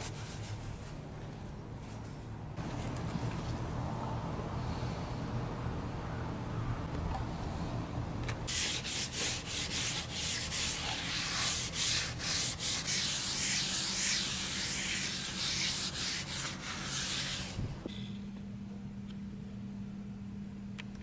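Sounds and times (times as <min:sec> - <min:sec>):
paper towel scrubbing a skillet: 0:08.5 - 0:17.6.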